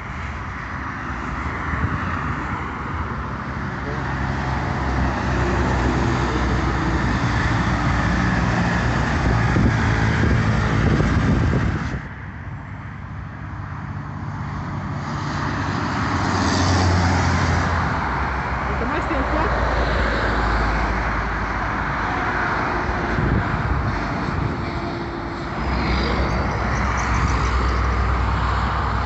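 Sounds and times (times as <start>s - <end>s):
heavy trucks passing: 0.0s - 29.0s
tyre and road noise: 0.0s - 29.0s.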